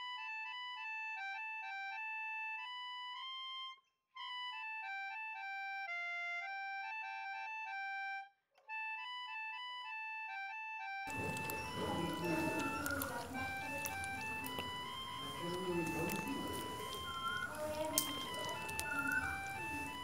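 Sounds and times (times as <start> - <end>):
simple instrumental melody: 0.0 - 20.0.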